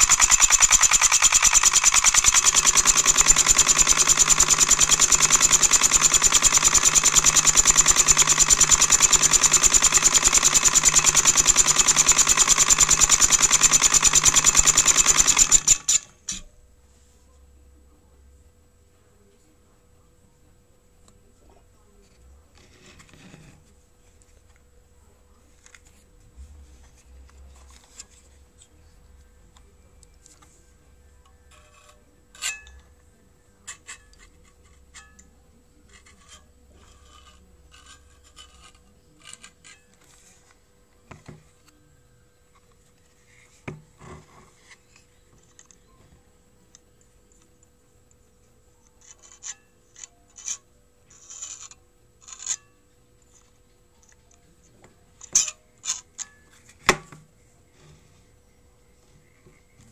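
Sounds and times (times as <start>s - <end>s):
clicks and metal scraping: 31.2s - 33.0s, 48.8s - 58.2s.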